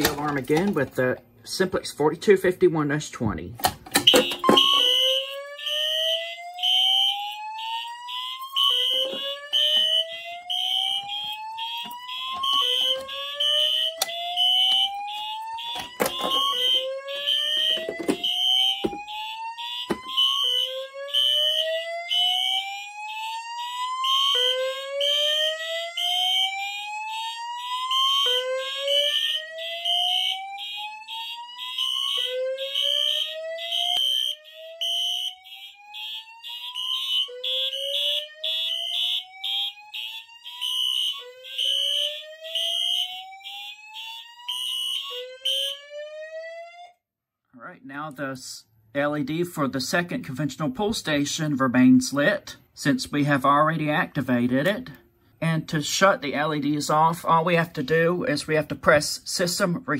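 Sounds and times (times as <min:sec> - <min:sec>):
high-pitched pulsing alarm horn: 0:04.0 - 0:45.9
rising whoop alarm tone: 0:04.5 - 0:46.9.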